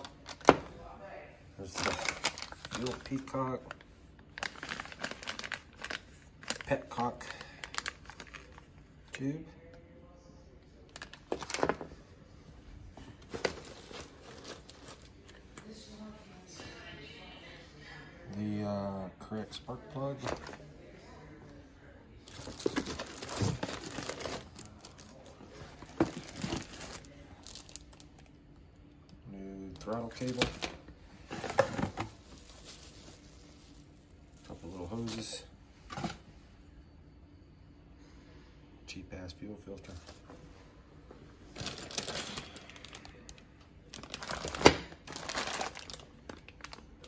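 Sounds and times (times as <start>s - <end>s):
plastic bags crinkling: 1.6s - 8.7s, 13.0s - 15.3s, 22.3s - 28.3s, 29.8s - 35.4s, 41.5s - 47.0s.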